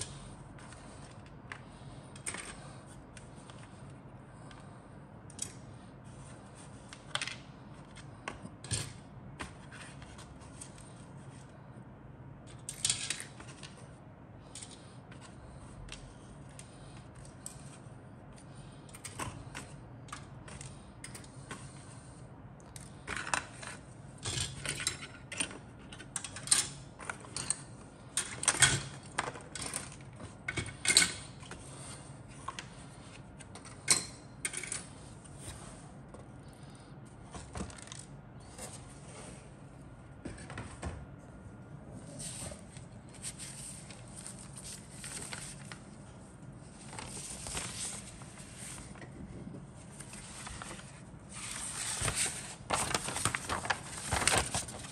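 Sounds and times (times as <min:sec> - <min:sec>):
plastic parts clicking and clattering: 0:22.8 - 0:31.6.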